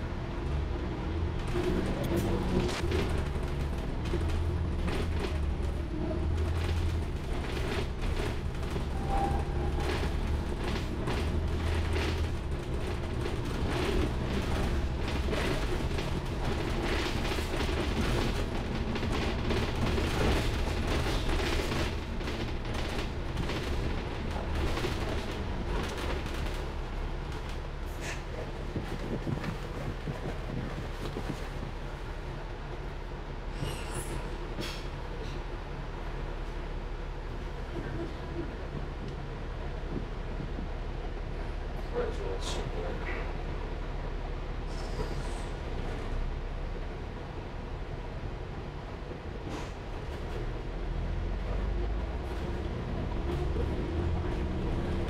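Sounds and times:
bus engine and road rumble: 0:00.0 - 0:55.0
bodywork rattling and knocking: 0:28.6 - 0:31.8.

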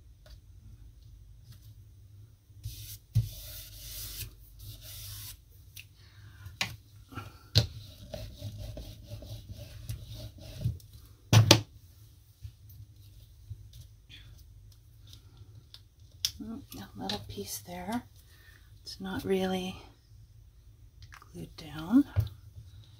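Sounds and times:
paper rubbing: 0:02.6 - 0:05.4.

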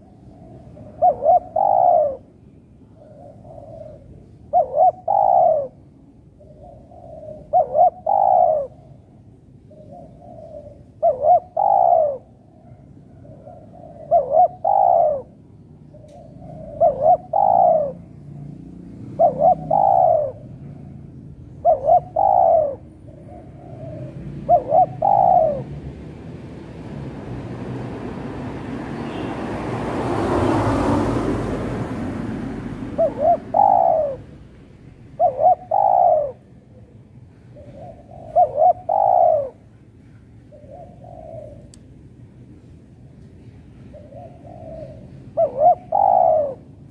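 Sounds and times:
dove cooing: 0:00.0 - 0:26.0, 0:29.9 - 0:42.0, 0:43.8 - 0:46.9.

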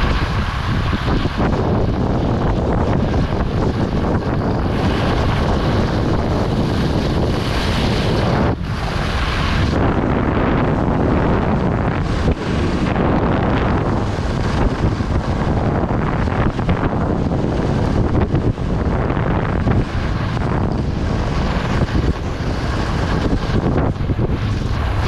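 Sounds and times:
wind buffeting microphone: 0:00.0 - 0:25.0
skis hissing on snow: 0:02.8 - 0:10.0.

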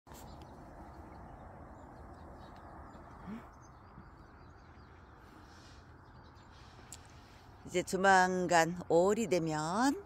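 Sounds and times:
small birds chirping: 0:00.1 - 0:08.0.

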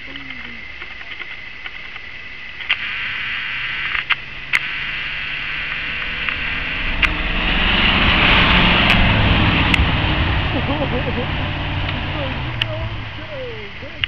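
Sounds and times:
sharp clicks: 0:00.1 - 0:07.2
truck engine under load: 0:05.9 - 0:14.0.

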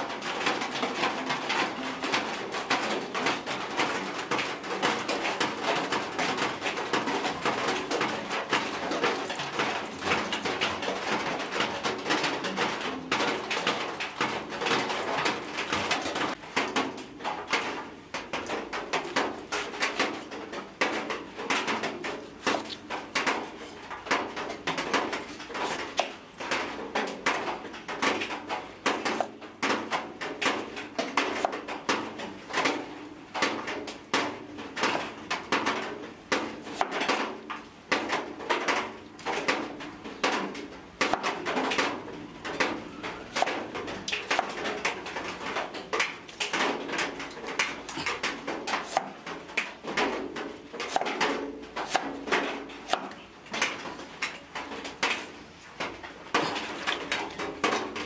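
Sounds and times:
cleaver chopping on wooden board: 0:48.8 - 0:49.2, 0:50.9 - 0:52.2, 0:52.9 - 0:53.2.

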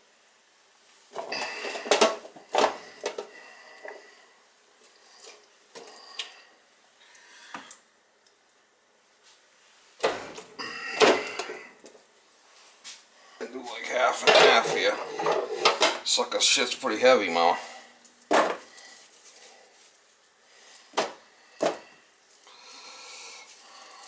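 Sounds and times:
roasting pans and utensils clanging: 0:14.0 - 0:16.1.

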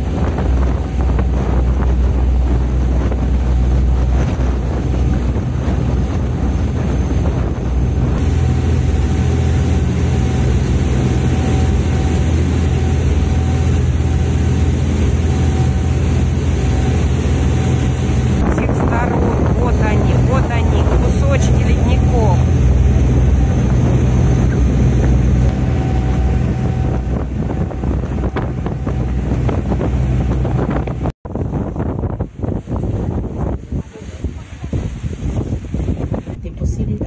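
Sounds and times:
water rushing past hull: 0:00.0 - 0:36.8
boat engine humming: 0:00.0 - 0:37.0
wind buffeting microphone: 0:00.0 - 0:37.0
hiss of churning wake: 0:08.2 - 0:28.6, 0:31.4 - 0:36.3.

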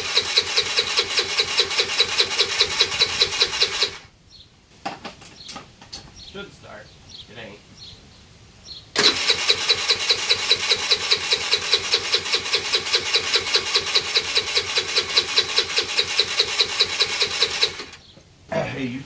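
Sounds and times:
scooter starter cranking engine: 0:00.0 - 0:04.1, 0:09.0 - 0:18.0.

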